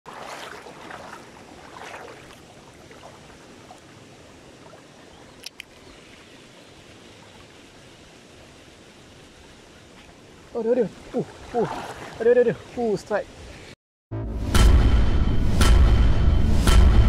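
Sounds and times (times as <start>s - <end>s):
water rushing over rapids: 0.1s - 13.7s.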